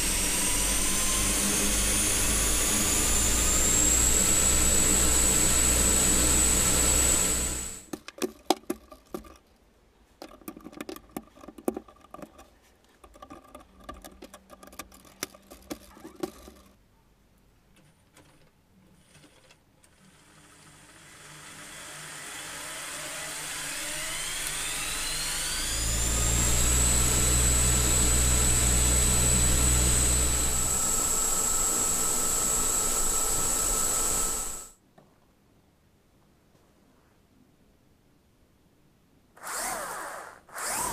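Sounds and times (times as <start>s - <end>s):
electric motors whining: 0.0s - 7.9s, 21.2s - 34.7s, 39.4s - 40.9s.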